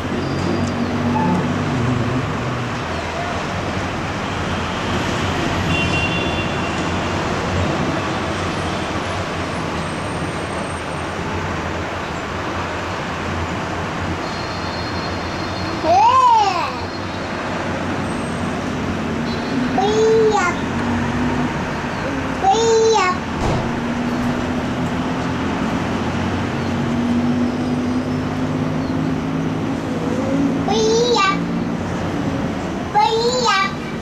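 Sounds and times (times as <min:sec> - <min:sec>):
distant road traffic: 0:00.0 - 0:34.0.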